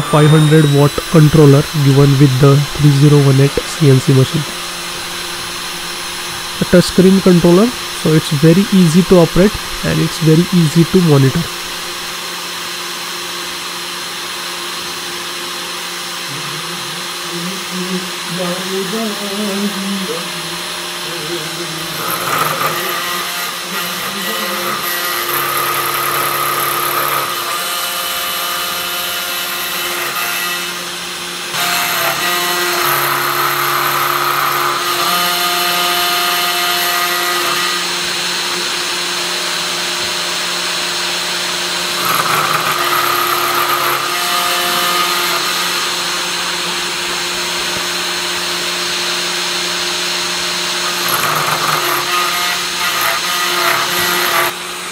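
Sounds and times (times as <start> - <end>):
stepper motors whining: 0.0 - 12.1
router spindle milling plastic: 21.6 - 28.7, 41.8 - 48.0, 50.7 - 54.6.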